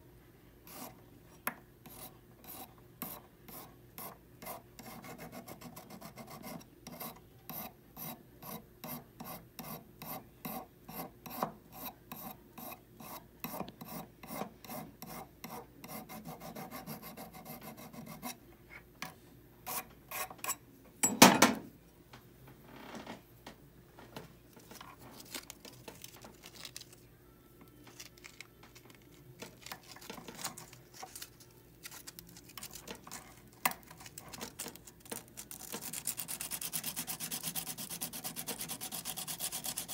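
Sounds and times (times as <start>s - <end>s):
file rasping on metal: 1.9s - 18.4s, 35.8s - 39.9s.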